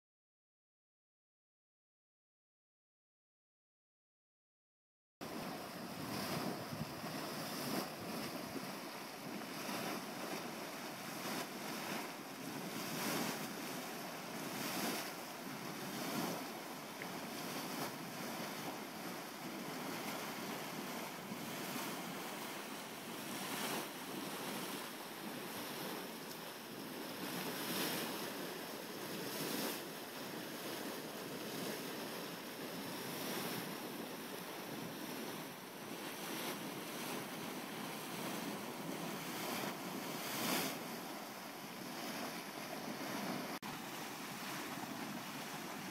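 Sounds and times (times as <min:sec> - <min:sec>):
boiling pool churning and splashing: 0:05.2 - 0:45.9.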